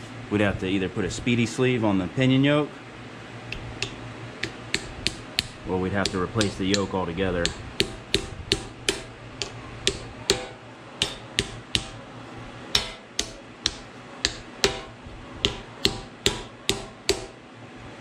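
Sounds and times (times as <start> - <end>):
hammer tapping metal: 3.5 - 12.0, 12.7 - 17.4.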